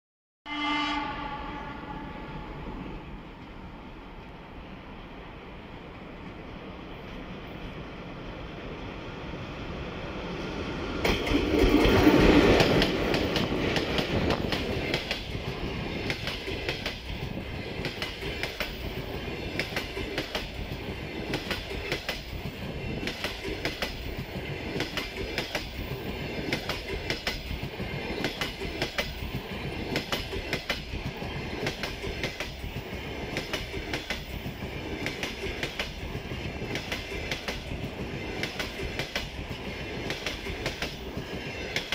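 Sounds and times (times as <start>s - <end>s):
electric locomotive passing: 0.5s - 41.9s
train wheels clickety-clack: 11.0s - 41.9s.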